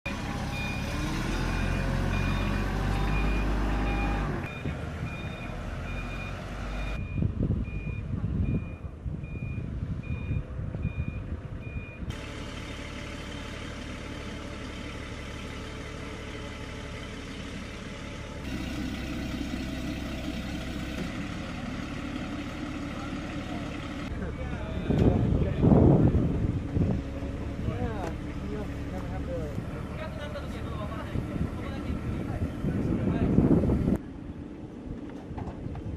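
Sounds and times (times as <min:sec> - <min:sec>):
forklift engine running: 0:00.1 - 0:34.0
forklift reversing alarm beeping: 0:00.2 - 0:12.1.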